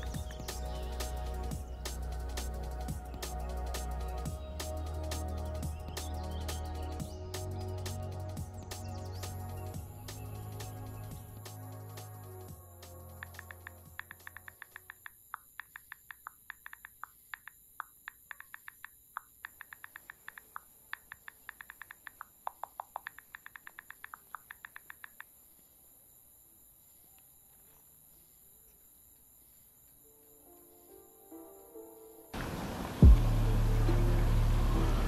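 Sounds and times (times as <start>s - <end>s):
phone keyboard tapping: 13.2s - 25.3s.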